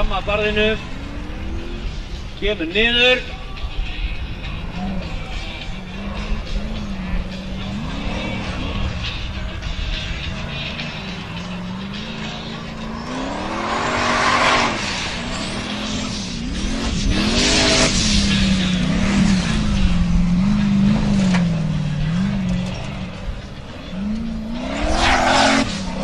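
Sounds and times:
buggy engine revving hard: 0:04.5 - 0:26.0
tyres spraying dirt: 0:10.8 - 0:22.2.

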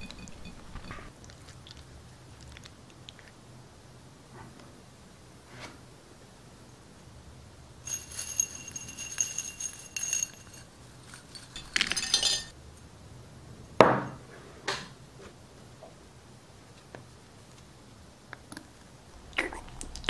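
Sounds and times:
metal pins clinking in ceramic bowl: 0:00.0 - 0:01.1, 0:07.8 - 0:12.5
pins rattling as they spill: 0:07.9 - 0:12.5.

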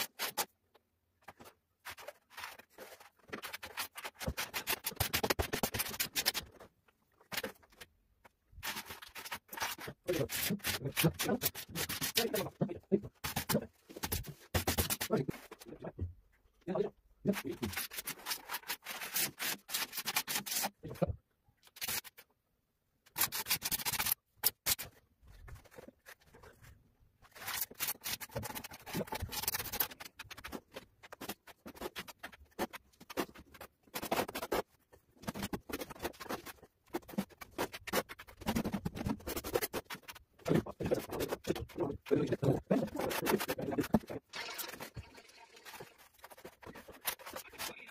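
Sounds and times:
trowel scraping adhesive: 0:08.6 - 0:12.6, 0:27.3 - 0:47.9.

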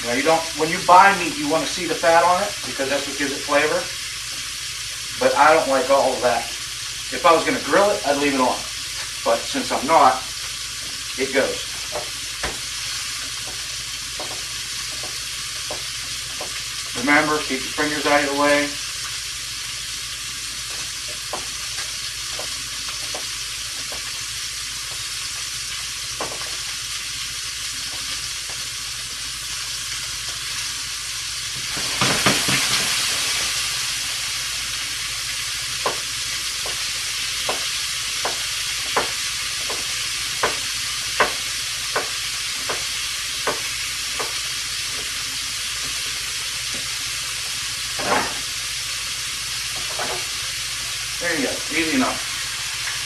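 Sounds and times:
butter sizzling in frying pan: 0:00.0 - 0:53.0.

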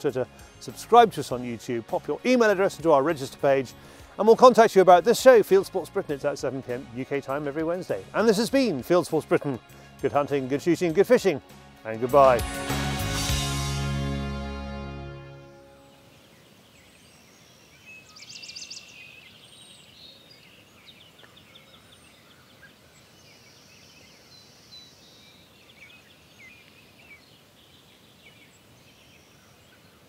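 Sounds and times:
songbirds singing and calling: 0:00.0 - 0:12.4, 0:15.8 - 0:30.0
faint outdoor hiss: 0:00.0 - 0:30.0
outro music: 0:00.2 - 0:16.1.

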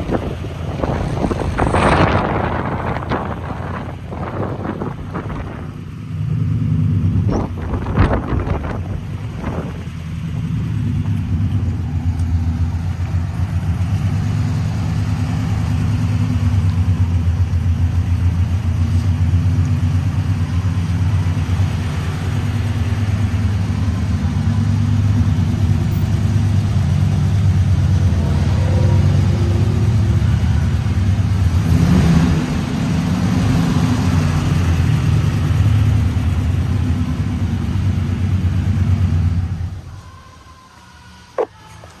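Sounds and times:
pickup truck engine running: 0:00.0 - 0:39.9.

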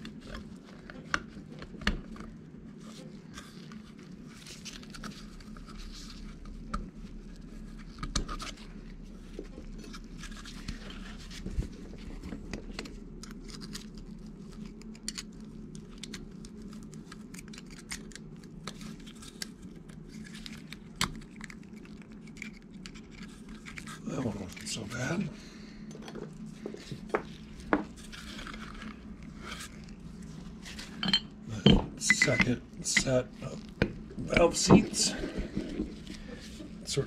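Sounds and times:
low hum: 0:22.2 - 0:37.0.

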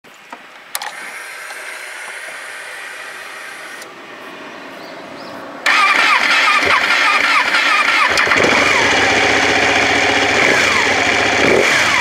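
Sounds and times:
motorcycle engine starting: 0:05.6 - 0:12.0.

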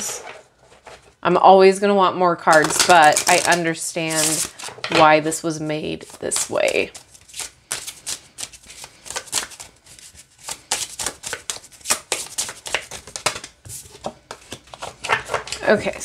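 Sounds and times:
cards being shuffled: 0:02.5 - 0:04.8, 0:06.0 - 0:15.7.

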